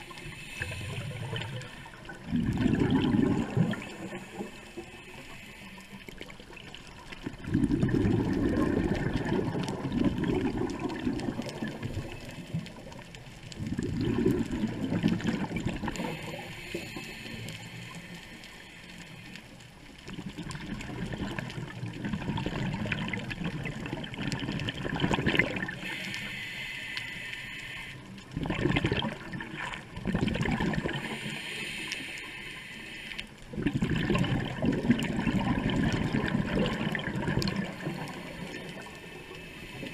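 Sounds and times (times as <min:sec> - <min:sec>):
diver exhaling bubbles underwater: 0:00.0 - 0:04.5, 0:06.6 - 0:12.2, 0:13.6 - 0:16.4, 0:20.1 - 0:26.0, 0:28.3 - 0:31.4, 0:33.5 - 0:39.0.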